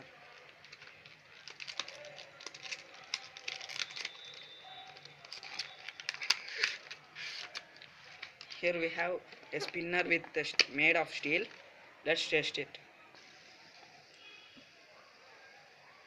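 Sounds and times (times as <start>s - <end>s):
packaging rustling and crinkling: 0.1s - 8.6s
small clicks and scrapes: 0.3s - 8.6s.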